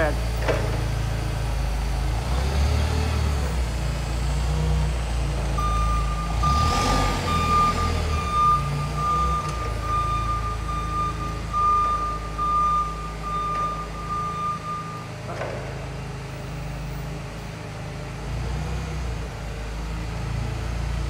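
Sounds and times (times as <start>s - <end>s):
forklift engine running: 0.0s - 21.0s
back-up alarm beeping: 5.6s - 15.2s.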